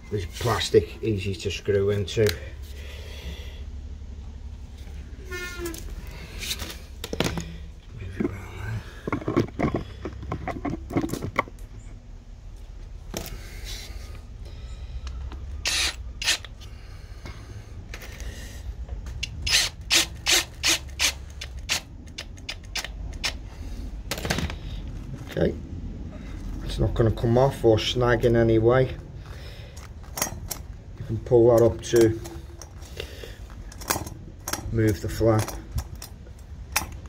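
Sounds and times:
clicks and knocks of handling: 9.0s - 11.7s
cordless drill driving a screw: 15.6s - 16.5s, 19.4s - 21.8s.

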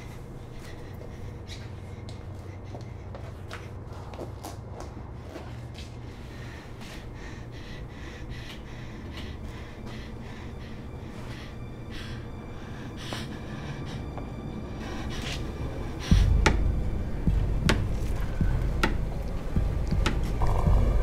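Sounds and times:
woman breathing quickly and gasping: 0.0s - 21.0s
low rumble: 13.4s - 21.0s.

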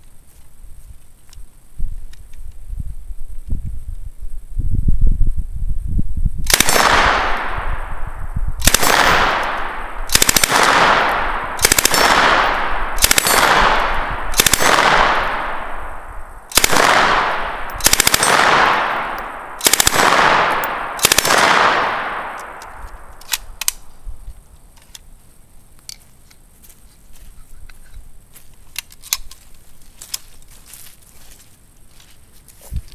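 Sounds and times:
submachine gun bursts: 6.5s - 7.4s, 8.6s - 15.5s, 16.5s - 22.2s.

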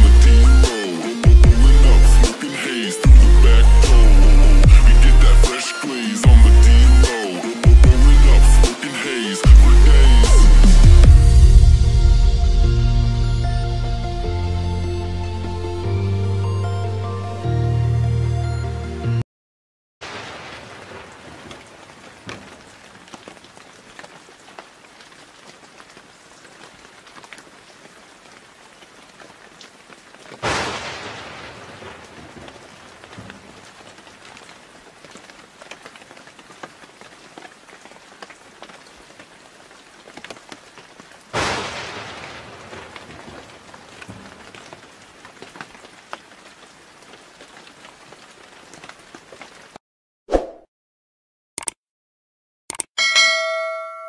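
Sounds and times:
steady rain: 0.0s - 13.5s, 20.0s - 49.8s
thunder claps: 30.4s - 33.6s, 41.4s - 44.8s.

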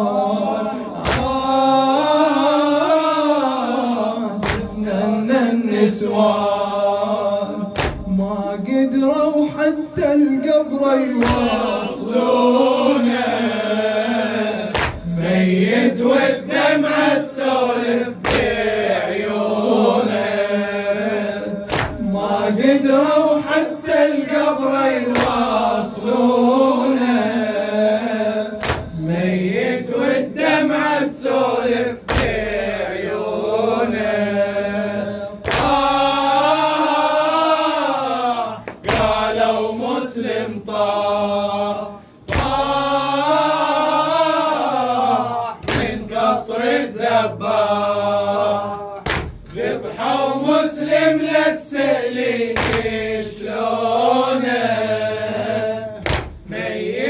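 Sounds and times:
men chanting a lament: 0.0s - 57.0s
heavy beat: 35.5s - 36.2s.

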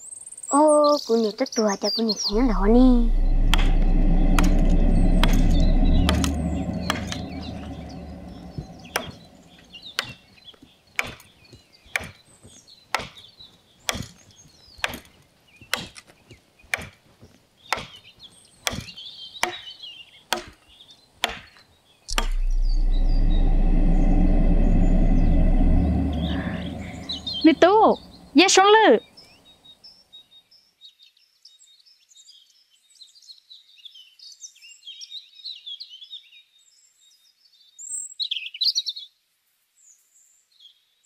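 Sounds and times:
steady low background sound: 2.3s - 10.0s, 22.1s - 28.7s.

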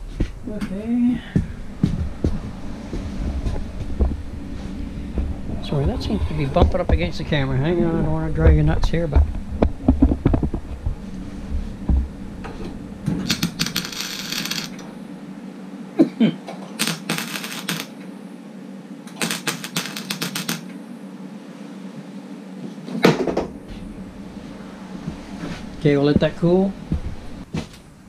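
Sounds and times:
welding arc crackling: 13.2s - 14.9s, 16.8s - 18.0s, 19.1s - 20.7s.

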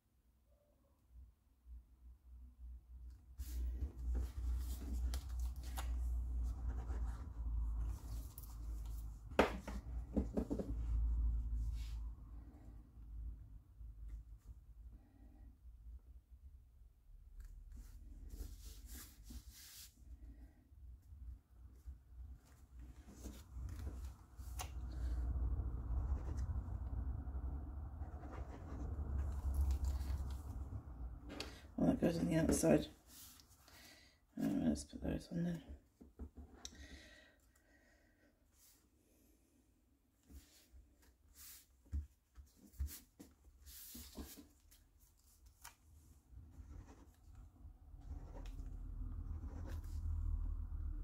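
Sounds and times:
paper rustling and rubbing: 3.4s - 10.7s, 28.0s - 31.4s, 40.3s - 50.2s.

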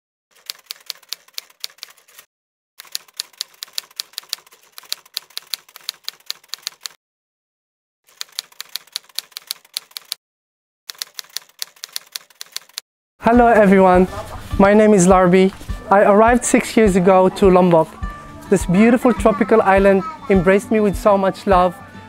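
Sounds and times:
typewriter keystrokes: 0.4s - 7.0s, 8.1s - 10.2s, 10.9s - 12.8s.

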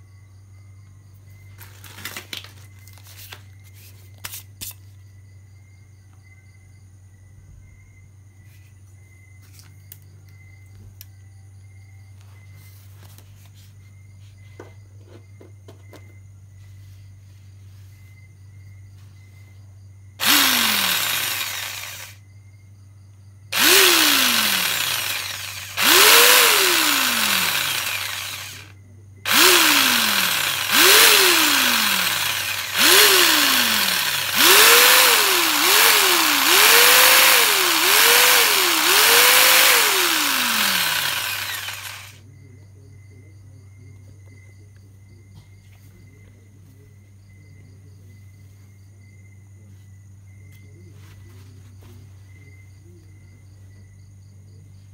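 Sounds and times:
jigsaw motor whining: 20.2s - 22.2s, 23.5s - 42.2s.

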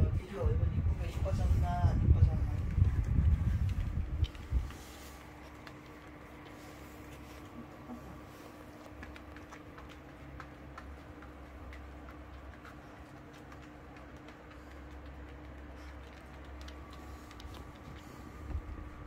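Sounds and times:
faint hum: 0.0s - 19.0s
dog claws clicking on hard floor: 8.5s - 18.5s.

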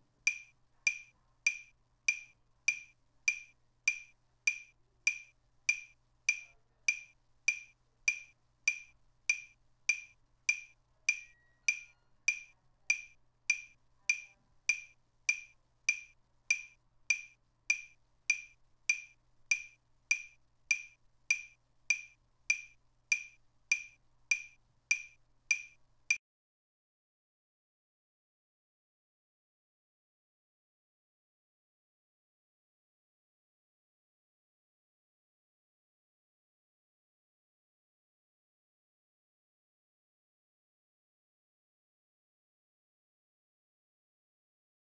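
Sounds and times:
wood-block metronome clicks: 0.2s - 26.2s.

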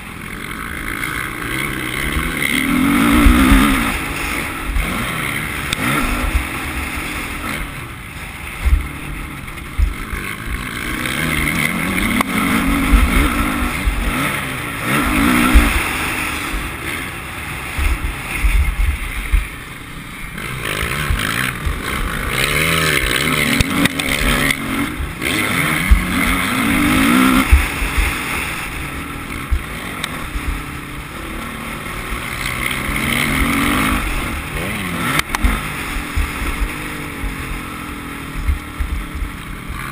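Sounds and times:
motocross bike engine revving: 0.0s - 39.9s
low thumps from track bumps: 9.7s - 10.1s.

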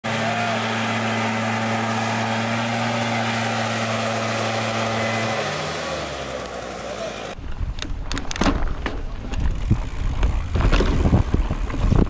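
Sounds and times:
leaf blower engine drone: 0.0s - 7.4s.

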